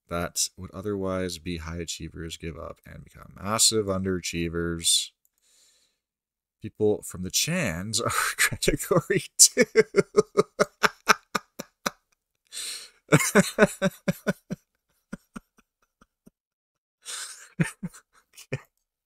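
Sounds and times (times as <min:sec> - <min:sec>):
sharp breath in: 0:05.4 - 0:06.0, 0:12.5 - 0:13.0
man laughing: 0:08.1 - 0:12.0, 0:12.6 - 0:16.3, 0:17.1 - 0:18.7.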